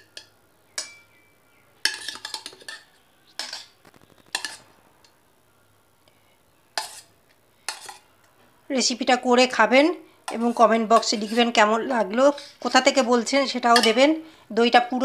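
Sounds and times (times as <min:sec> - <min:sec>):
spoon clinking and scraping on metal: 0:00.0 - 0:01.1, 0:01.8 - 0:04.6, 0:06.8 - 0:07.1, 0:07.7 - 0:08.1, 0:10.3 - 0:12.8, 0:13.6 - 0:14.1.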